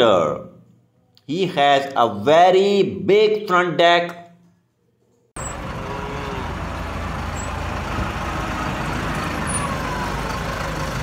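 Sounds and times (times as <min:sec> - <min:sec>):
diesel engine rumbling: 0:05.4 - 0:11.0.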